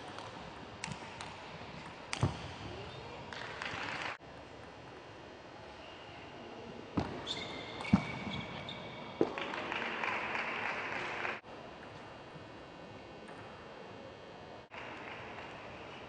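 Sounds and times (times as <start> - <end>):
shoe squeaks on floor: 7.2 - 8.9.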